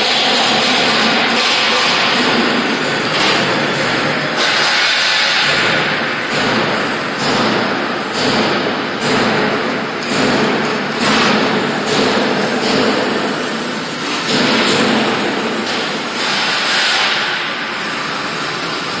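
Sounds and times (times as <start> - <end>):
metal sheet scraping through rollers: 10.8 - 19.0.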